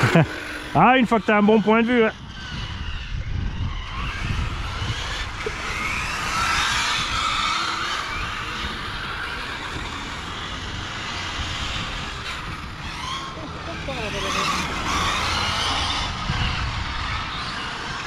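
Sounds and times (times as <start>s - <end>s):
radio-controlled car motors whining: 0.0s - 18.0s.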